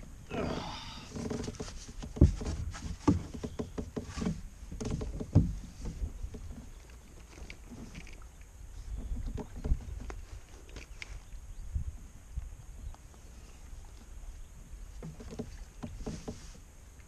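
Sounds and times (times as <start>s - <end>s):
knocks against kayak hull: 1.3s - 6.5s.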